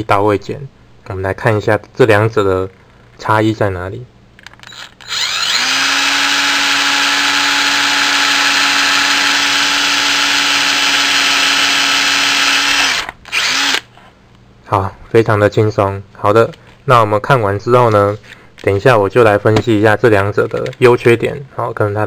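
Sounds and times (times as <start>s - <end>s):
cordless drill boring into wood: 4.7s - 13.9s.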